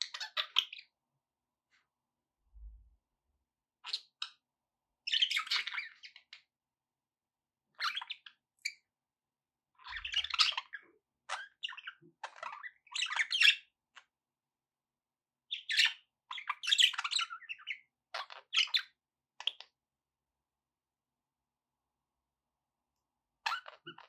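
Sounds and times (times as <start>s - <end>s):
budgerigars chirping: 0.1s - 0.8s, 5.1s - 6.4s, 7.8s - 8.7s, 9.8s - 13.7s, 15.5s - 19.6s.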